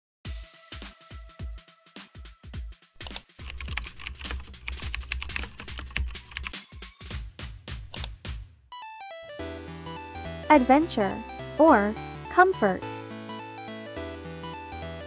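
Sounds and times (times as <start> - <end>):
keyboard key clicks: 3.0 - 6.5, 7.9 - 8.2
electronic music with thumping beat: 3.4 - 8.4.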